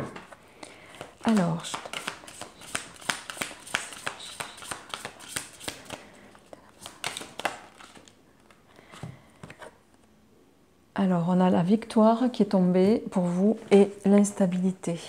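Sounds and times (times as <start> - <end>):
cards being shuffled: 0.2 - 9.7.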